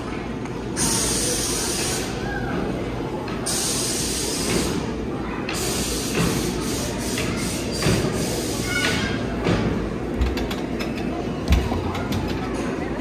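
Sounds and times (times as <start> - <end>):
hiss: 0.8 - 2.2, 3.5 - 4.9, 5.5 - 8.9.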